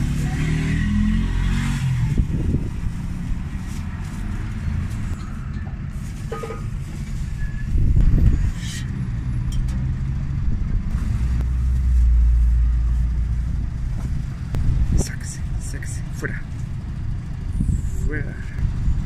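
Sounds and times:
vehicle passing by: 0.0s - 7.0s
road traffic rumble: 0.0s - 19.0s.

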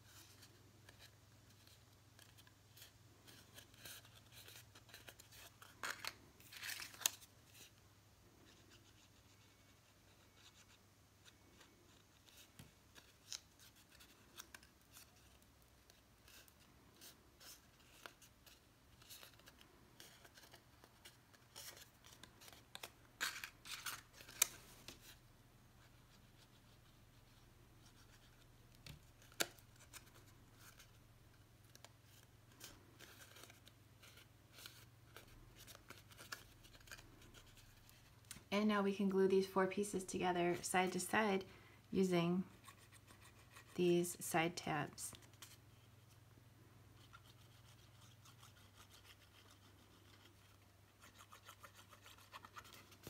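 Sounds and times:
cardstock rustling and crinkling: 0.0s - 7.8s, 8.4s - 25.2s, 27.8s - 38.5s.

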